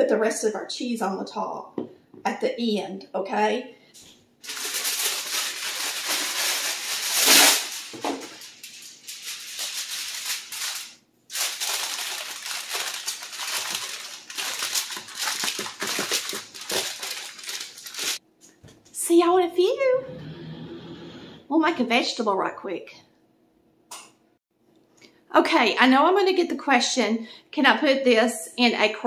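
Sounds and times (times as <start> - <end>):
aluminium foil crinkling: 4.0 - 18.2.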